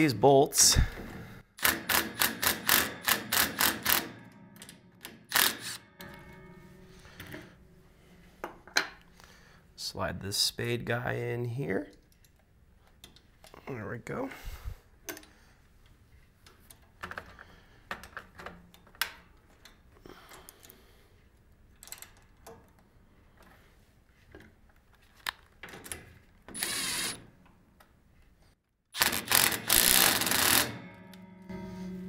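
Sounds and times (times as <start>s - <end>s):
cordless drill running: 26.6s - 27.2s, 29.0s - 30.7s.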